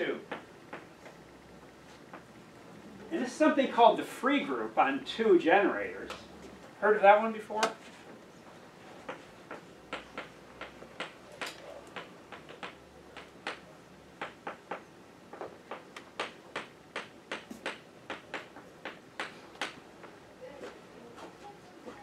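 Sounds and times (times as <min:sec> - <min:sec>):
chalk tapping on blackboard: 0:09.0 - 0:11.2, 0:12.0 - 0:13.6, 0:14.2 - 0:19.8.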